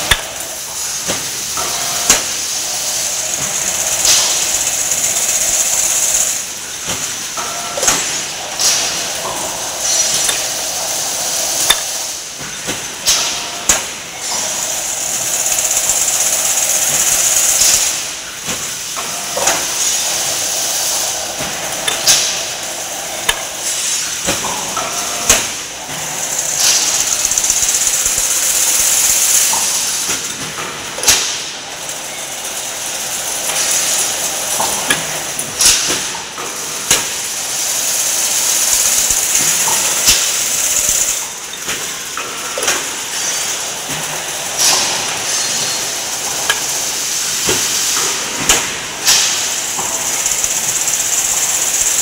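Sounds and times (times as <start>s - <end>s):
fencing machine hissing: 36.9s - 41.9s, 42.6s - 52.0s.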